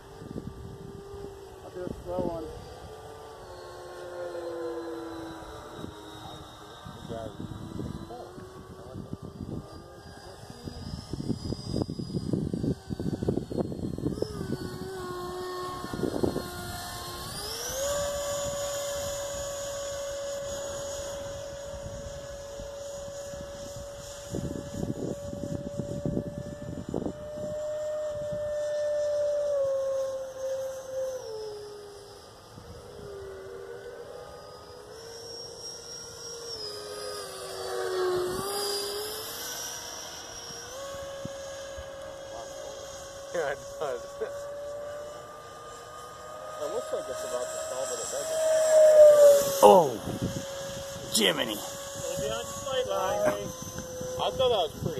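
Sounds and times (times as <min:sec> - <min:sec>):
wind on microphone rumble: 0:00.0 - 0:03.0, 0:06.9 - 0:19.6, 0:21.6 - 0:28.6, 0:49.0 - 0:54.9
electric ducted fan whining: 0:00.0 - 0:54.9.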